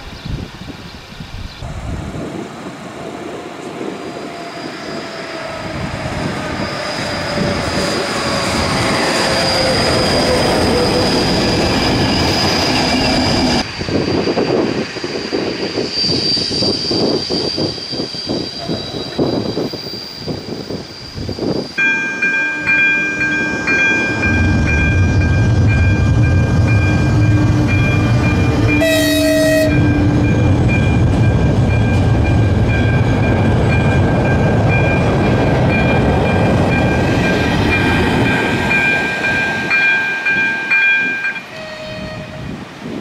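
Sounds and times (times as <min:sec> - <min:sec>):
train rumbling over rails: 0:00.0 - 0:43.0
level crossing warning tone: 0:21.8 - 0:42.2
train horn: 0:22.2 - 0:25.0, 0:28.6 - 0:30.2, 0:41.4 - 0:42.6.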